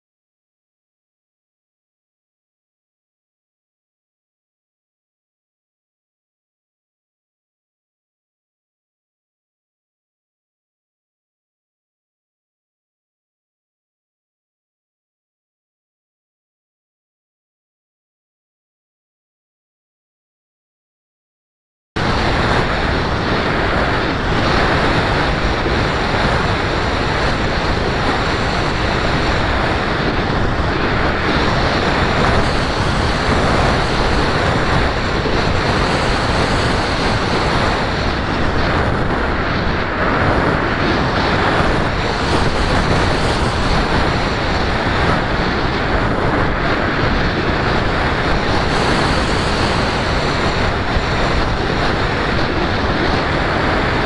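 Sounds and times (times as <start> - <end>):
wind rushing on microphone: 22.0 - 54.0.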